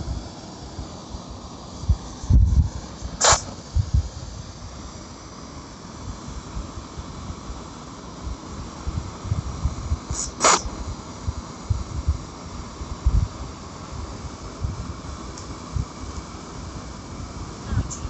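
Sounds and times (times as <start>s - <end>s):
steady rushing noise: 0.0s - 18.0s
short sharp hiss: 1.7s - 3.9s, 10.0s - 10.8s
wind buffeting microphone: 1.8s - 4.5s, 8.3s - 15.1s.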